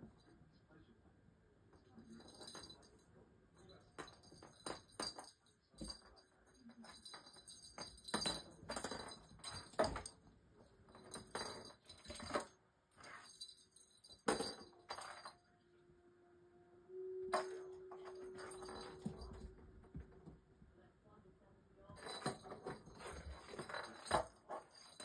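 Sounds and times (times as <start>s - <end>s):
small bell jingling: 2.0s - 15.5s, 17.3s - 20.2s, 21.9s - 25.0s.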